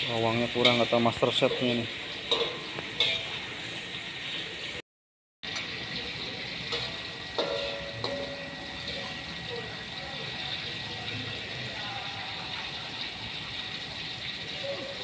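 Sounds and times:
chilies sizzling in oil: 0.0s - 4.8s, 5.4s - 15.0s
metal spatula scraping wok: 0.5s - 4.4s, 6.7s - 9.2s.

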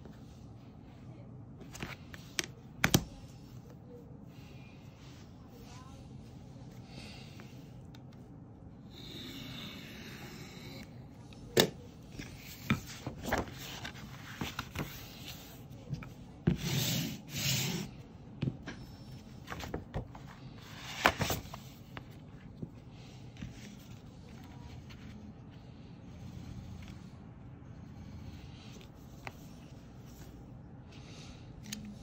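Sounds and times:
paper rustling and rubbing: 12.1s - 15.9s.

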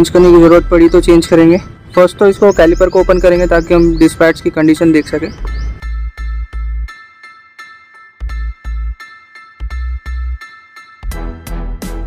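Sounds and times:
deep bass notes: 0.0s - 1.4s, 2.5s - 4.1s, 4.9s - 6.9s, 8.2s - 9.0s, 9.6s - 10.4s, 11.0s - 12.0s
bell-like melody: 2.4s - 11.8s.

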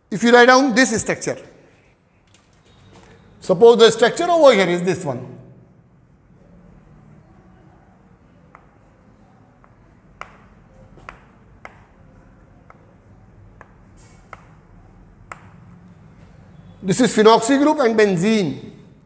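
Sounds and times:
chalk tapping on chalkboard: 8.5s - 8.9s, 9.6s - 15.9s.

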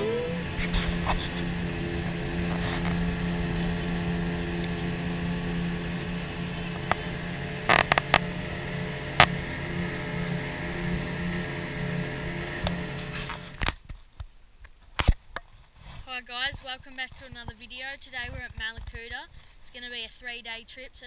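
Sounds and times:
outboard motor running: 0.0s - 13.7s.

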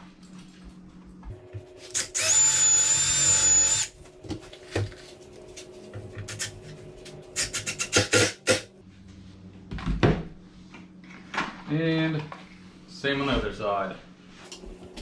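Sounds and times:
cordless drill driving a screw: 1.9s - 3.9s.

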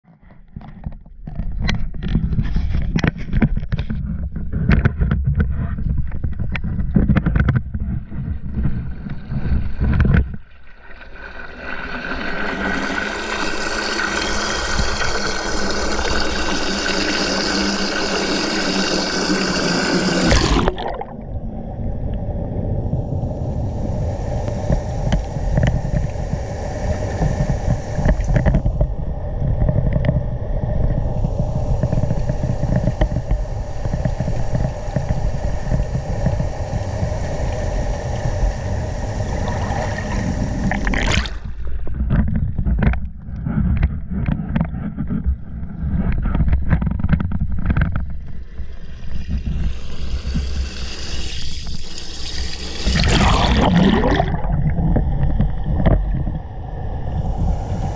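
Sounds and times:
underwater churning rumble: 0.6s - 57.9s
faint hum: 13.0s - 57.9s.

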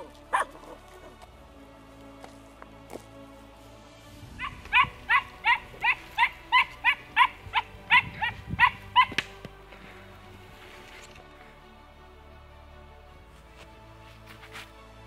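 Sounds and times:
dog barking high-pitched: 0.0s - 0.8s, 4.4s - 9.2s.

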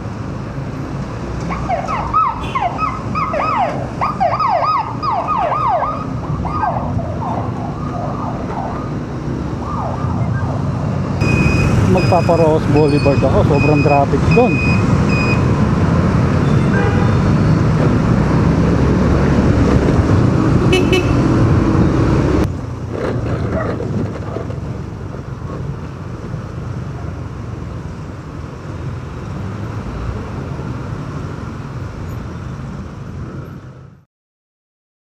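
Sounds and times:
motorcycle engine: 14.9s - 23.8s
vehicle horn toots: 16.4s - 17.3s, 20.7s - 21.3s.

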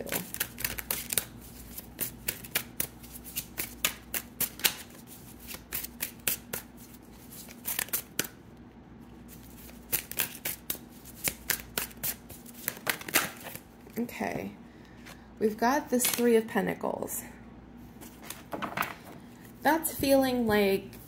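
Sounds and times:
cards being shuffled: 0.0s - 8.4s, 9.3s - 13.6s, 16.0s - 16.3s, 18.0s - 19.6s.

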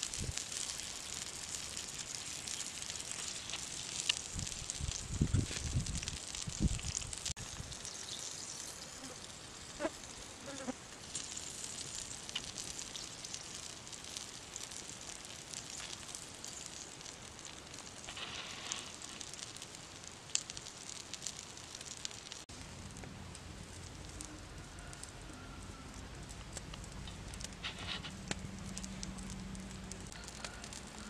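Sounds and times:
frogs sizzling on hot stone: 0.0s - 31.0s
wood fire crackling: 0.0s - 31.0s.

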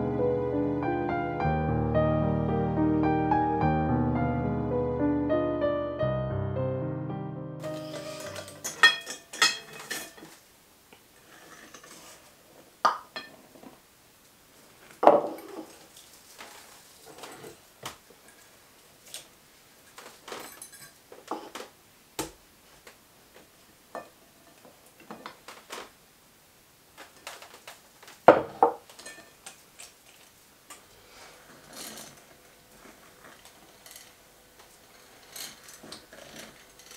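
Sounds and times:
utensils clinking against glass bowl: 7.8s - 10.3s.

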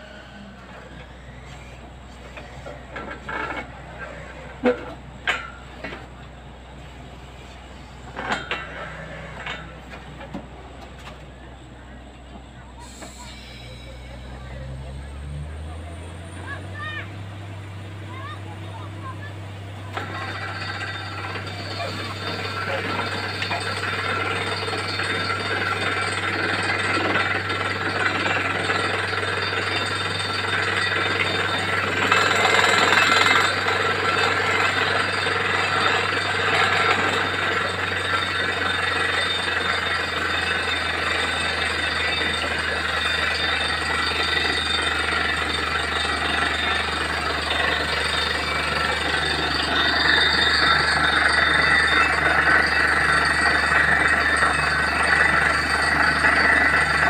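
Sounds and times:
drilling rig engine droning: 0.0s - 57.0s.

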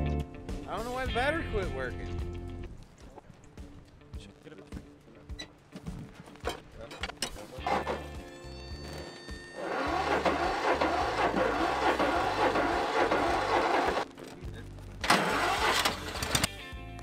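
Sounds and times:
lawn mower engine running: 7.6s - 14.1s, 15.0s - 16.5s.

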